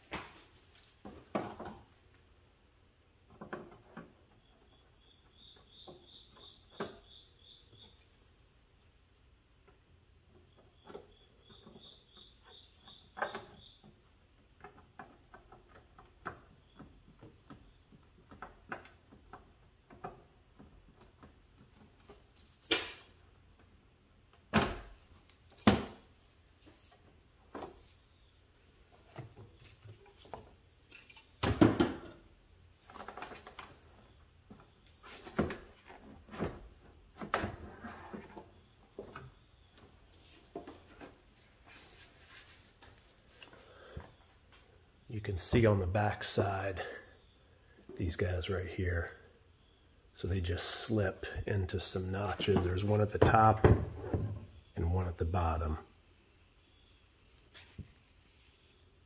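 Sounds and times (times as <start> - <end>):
faint cricket chirps: 3.7 - 8.7, 9.7 - 14.4, 43.4 - 53.6, 56.2 - 57.6.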